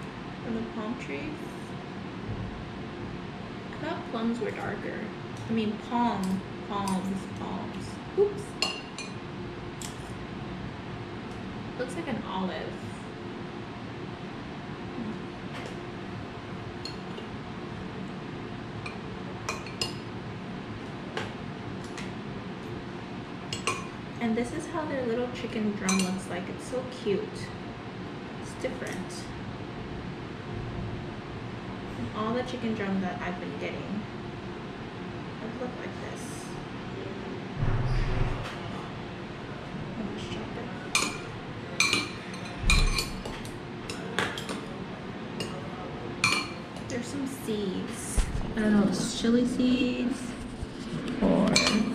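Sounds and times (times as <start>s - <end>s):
steady low hum: 0.0s - 51.9s
heavier knock: 37.6s - 38.4s
metal utensils clinking on dishes: 40.9s - 44.6s, 46.2s - 46.6s, 51.5s - 51.9s.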